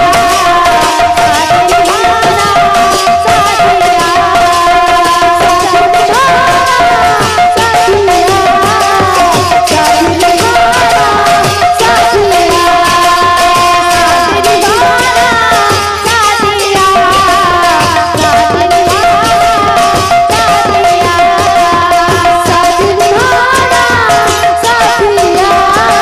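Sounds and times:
barrel drum rhythm: 0:00.0 - 0:26.0.

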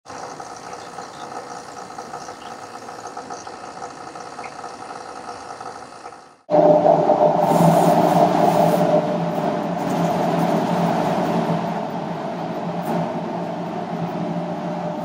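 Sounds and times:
espresso machine pump hum: 0:00.1 - 0:06.5.

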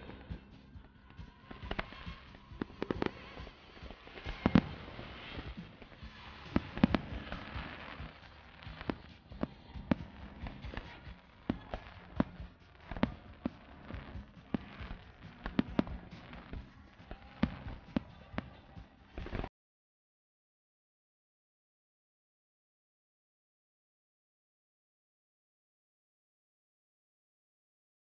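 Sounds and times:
fireworks bursting bangs: 0:00.0 - 0:19.5
fireworks crackling: 0:00.0 - 0:19.5.

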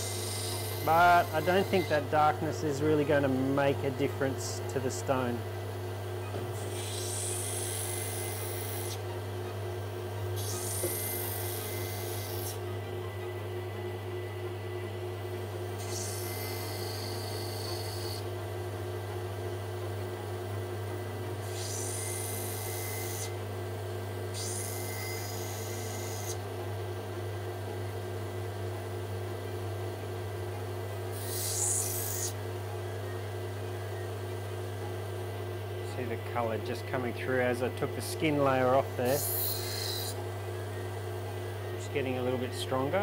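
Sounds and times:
grinding machine motor hum: 0:00.0 - 0:43.0
stone grinding hiss: 0:31.1 - 0:32.4, 0:39.0 - 0:40.2.

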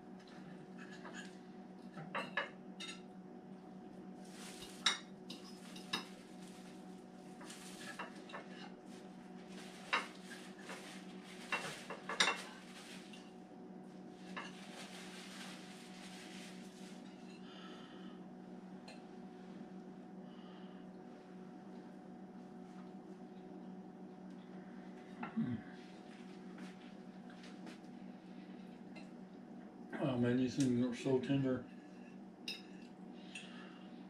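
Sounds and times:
steady low hum: 0:00.0 - 0:34.0
utensils clinking on plates: 0:04.5 - 0:06.2, 0:11.5 - 0:12.5.

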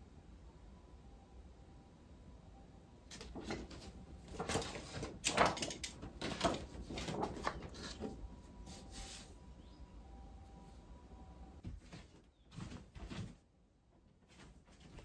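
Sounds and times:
paper poster rustling on wallpaper: 0:03.1 - 0:09.4, 0:11.6 - 0:15.0.

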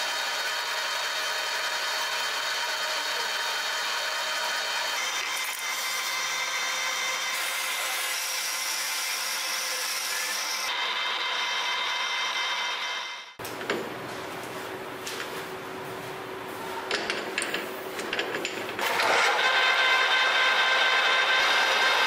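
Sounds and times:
metal lathe running: 0:00.0 - 0:13.3, 0:18.8 - 0:22.0
drill boring into brass: 0:18.8 - 0:22.0.

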